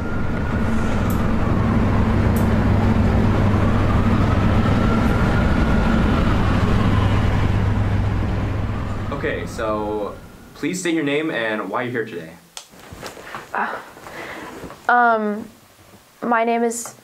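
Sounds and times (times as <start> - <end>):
loud mechanical rumble: 0.0 - 10.6
faint rising and falling tone: 0.0 - 11.6.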